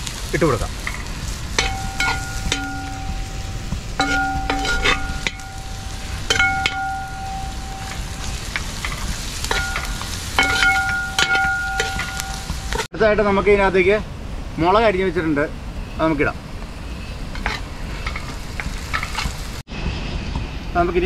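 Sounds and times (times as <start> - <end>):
onions sizzling in oil: 0.0 - 12.9, 15.8 - 19.7
vessel ringing: 1.6 - 12.8
spoon knocking and scraping vessel: 4.0 - 5.5.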